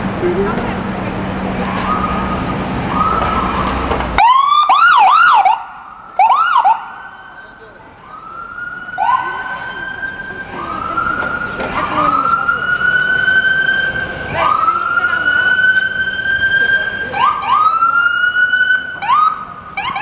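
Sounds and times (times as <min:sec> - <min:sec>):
ambulance siren wailing and yelping: 0:01.6 - 0:20.0.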